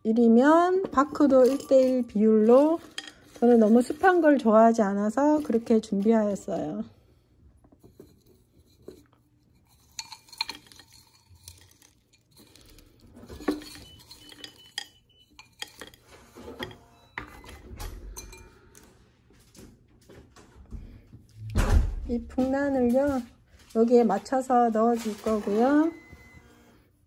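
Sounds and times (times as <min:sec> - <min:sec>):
stones clinking against pots: 0:00.1 - 0:06.7, 0:07.8 - 0:17.3.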